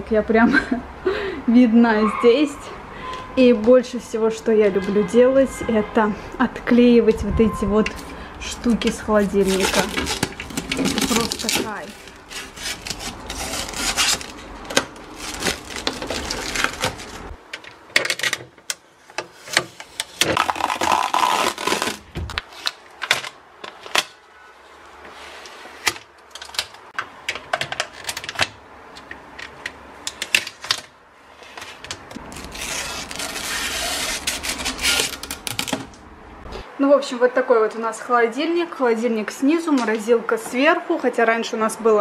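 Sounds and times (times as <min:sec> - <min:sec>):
plastic film peeling: 0:09.2 - 0:17.4, 0:19.5 - 0:24.2, 0:31.8 - 0:36.0.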